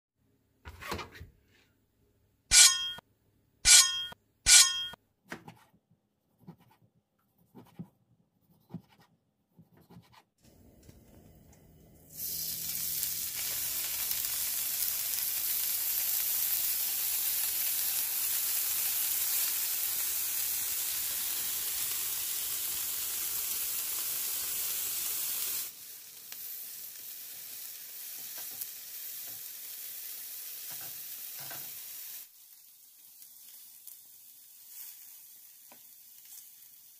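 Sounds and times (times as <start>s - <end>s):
short loud ringing sounds: 2.5s - 3.0s, 3.7s - 5.0s
meat sizzling on a griddle: 12.1s - 36.9s.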